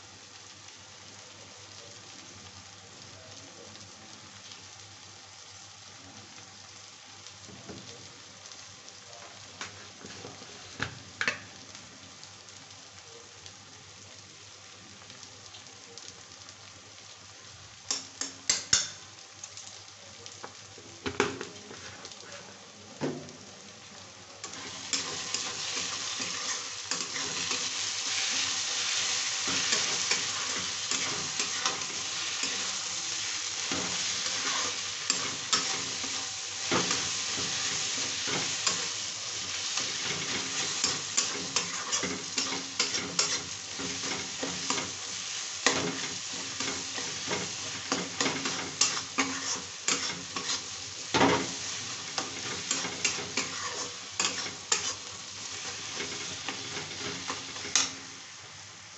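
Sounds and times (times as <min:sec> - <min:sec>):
onions sizzling in oil: 0:00.0 - 0:58.9
metal spatula scraping pan: 0:39.8 - 0:44.9, 0:45.7 - 0:57.9.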